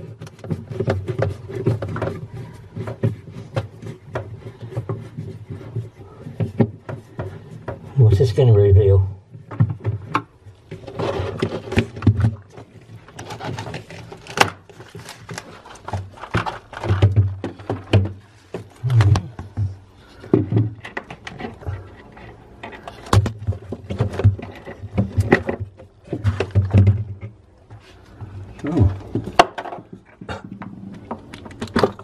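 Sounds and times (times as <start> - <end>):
plastic panel clicks and scraping: 9.4 - 32.0.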